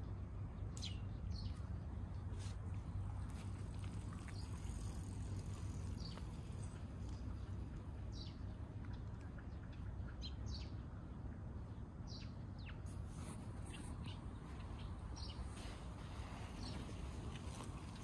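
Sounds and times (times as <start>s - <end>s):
low outdoor rumble: 0.0s - 18.0s
small birds chirping: 2.8s - 10.9s, 12.1s - 18.0s.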